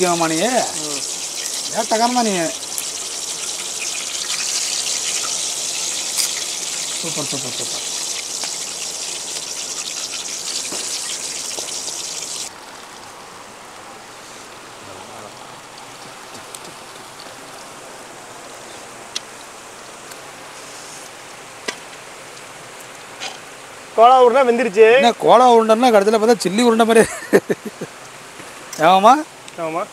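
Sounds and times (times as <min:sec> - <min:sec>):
meatballs deep-frying in oil: 0:00.0 - 0:13.1.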